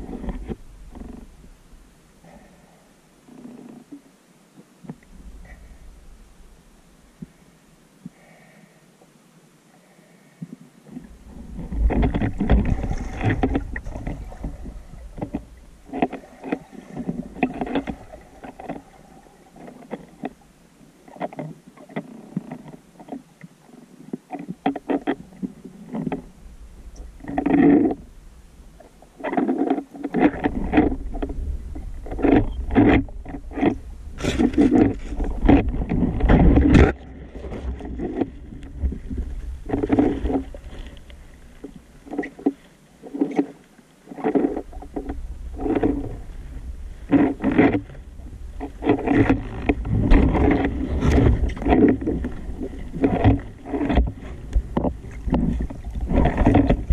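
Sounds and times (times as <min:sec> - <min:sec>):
underwater sloshing and knocking: 0:00.0 - 0:02.6, 0:03.3 - 0:06.5, 0:10.4 - 0:56.9
low underwater rumble: 0:10.9 - 0:20.6, 0:30.1 - 0:42.4, 0:44.4 - 0:56.9.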